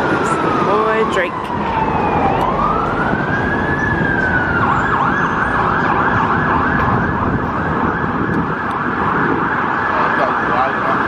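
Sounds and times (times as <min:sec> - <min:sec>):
emergency vehicle siren: 0:00.0 - 0:11.0
street traffic rumble: 0:00.0 - 0:11.0.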